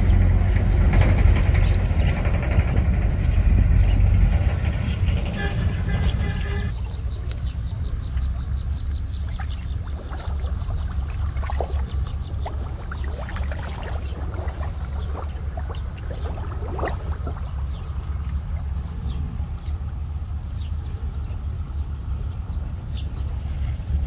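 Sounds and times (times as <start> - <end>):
steady low rumble: 0.0 - 24.0
water drips and sloshes: 6.3 - 19.8
water trickling and splashing: 6.3 - 19.9.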